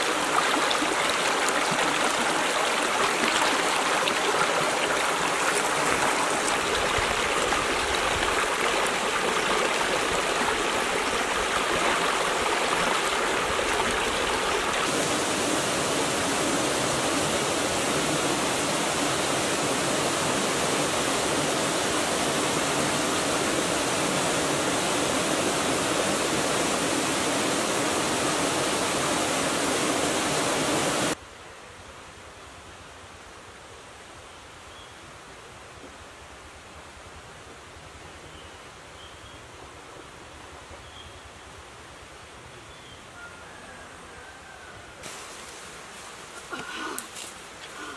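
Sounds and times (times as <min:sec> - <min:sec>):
stream rushing over stones: 0:00.0 - 0:31.2, 0:45.0 - 0:47.9
background hiss: 0:45.0 - 0:47.9.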